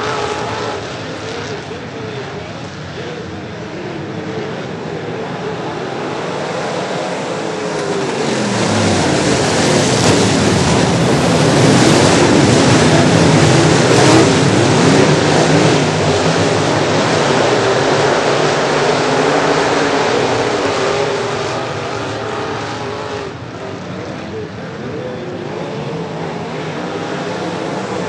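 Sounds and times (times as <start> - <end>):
race car engines: 0.0 - 28.0.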